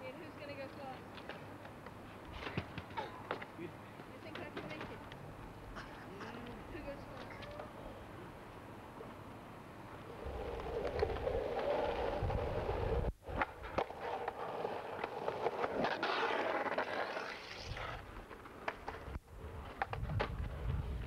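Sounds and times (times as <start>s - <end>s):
outdoor noise hiss: 0.0s - 21.0s
skateboard wheels rolling on asphalt: 0.0s - 21.0s
skateboard clacks and knocks: 1.2s - 5.2s.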